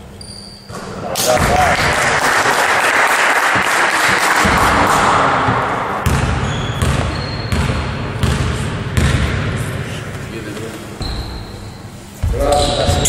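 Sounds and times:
loud rush of hall noise: 0.7s - 13.0s
basketball bouncing on wooden floor: 5.5s - 9.6s.

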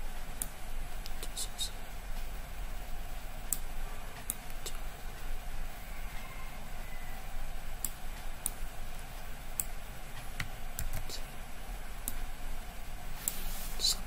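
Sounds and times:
low steady hum: 0.0s - 14.0s
computer mouse and keyboard clicks: 9.6s - 11.2s.

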